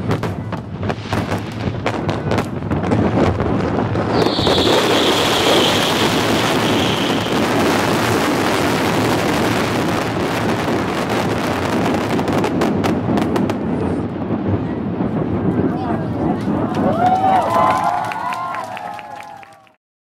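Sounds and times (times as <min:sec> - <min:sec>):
sharp firework cracks: 0:00.0 - 0:15.7
fireworks rumble and crackle: 0:00.0 - 0:19.8
high falling firework whistle: 0:04.0 - 0:09.6.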